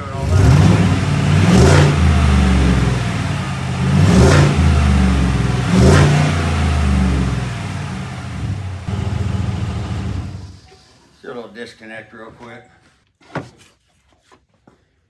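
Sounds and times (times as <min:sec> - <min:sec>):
truck engine revving from idle: 0:00.0 - 0:10.6.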